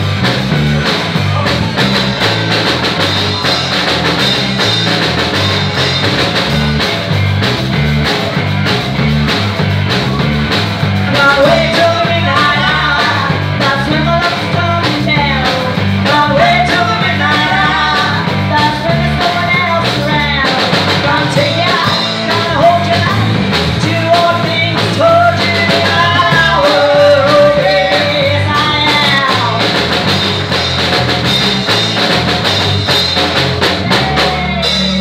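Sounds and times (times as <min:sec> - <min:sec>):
drum kit: 0:00.0 - 0:35.0
electric guitars: 0:00.0 - 0:35.0
woman singing into a microphone: 0:11.1 - 0:29.7.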